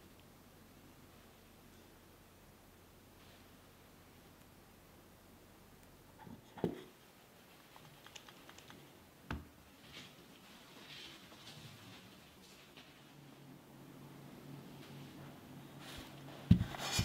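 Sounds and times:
soft rustling: 9.7 - 13.4.

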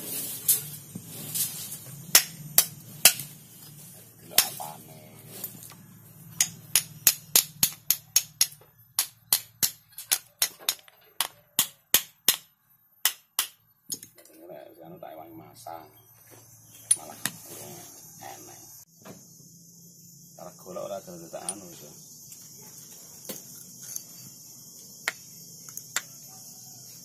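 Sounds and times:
hammer striking metal: 6.3 - 13.6.

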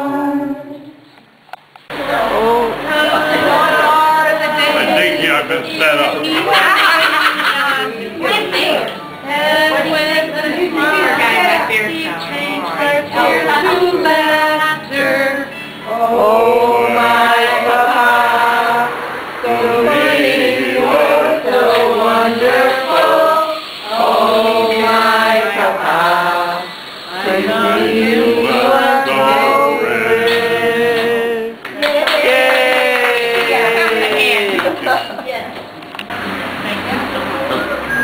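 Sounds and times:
group singing unaccompanied: 0.0 - 1.0, 1.9 - 35.0.

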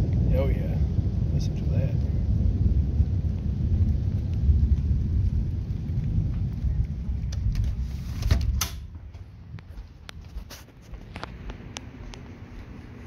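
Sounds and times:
rain hiss: 0.0 - 8.6
thunder rumbling: 0.0 - 13.0.

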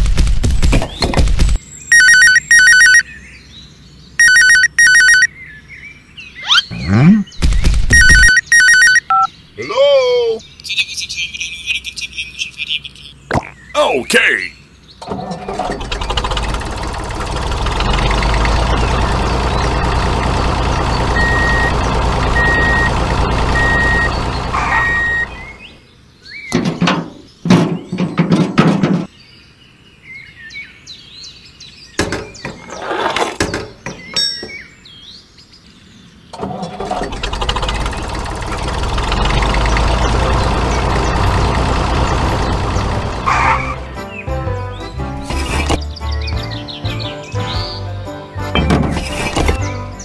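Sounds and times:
short beeps: 4.2 - 5.3, 8.0 - 9.3
tractor engine running: 7.4 - 9.3, 15.0 - 25.8, 36.4 - 44.1.

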